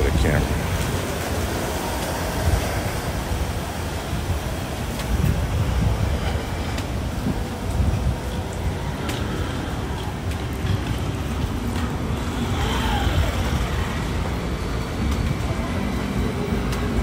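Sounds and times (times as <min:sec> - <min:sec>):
low rumble of traffic: 0:00.0 - 0:17.0
motor scooter riding past: 0:12.2 - 0:14.0.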